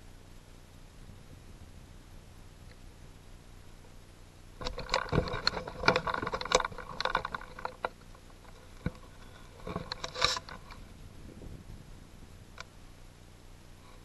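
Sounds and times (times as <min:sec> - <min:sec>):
clicks and creaks: 0:04.6 - 0:10.9.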